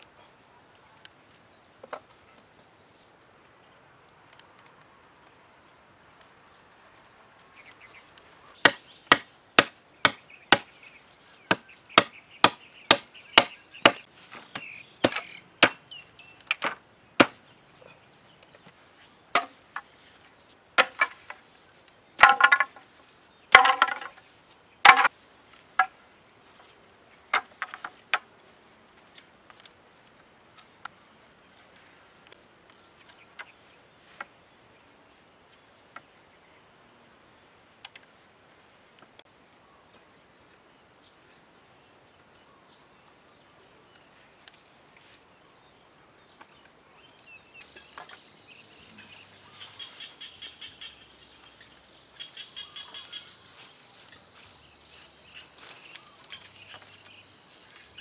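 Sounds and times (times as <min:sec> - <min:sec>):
blade chopping bamboo: 0:08.6 - 0:10.8, 0:11.4 - 0:15.9, 0:16.5 - 0:17.4, 0:19.3 - 0:19.9, 0:20.8 - 0:21.4, 0:22.2 - 0:22.8, 0:23.5 - 0:24.2, 0:24.8 - 0:25.1.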